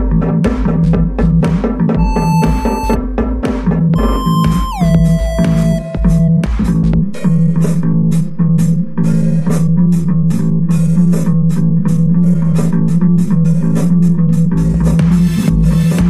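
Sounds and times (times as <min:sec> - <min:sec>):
steady drum beat: 0:00.0 - 0:08.2, 0:11.5 - 0:16.0
bass guitar: 0:04.0 - 0:16.0.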